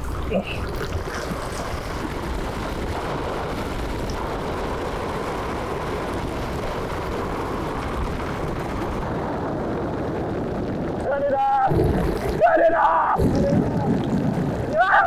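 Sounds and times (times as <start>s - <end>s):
water gushing into metal truck bed: 0.0s - 4.6s.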